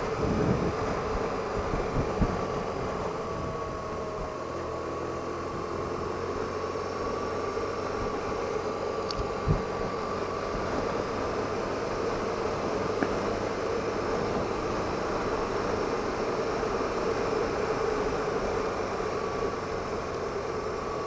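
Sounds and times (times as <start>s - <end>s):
wind noise: 0.0s - 4.4s, 9.1s - 11.9s
motorcycle engine cruising: 0.0s - 21.0s.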